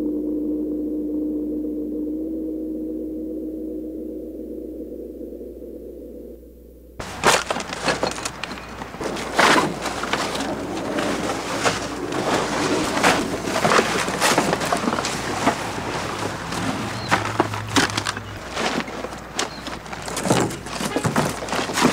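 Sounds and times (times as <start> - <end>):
low steady drone: 0.0 - 7.0
plastic bags crinkling: 7.0 - 21.9.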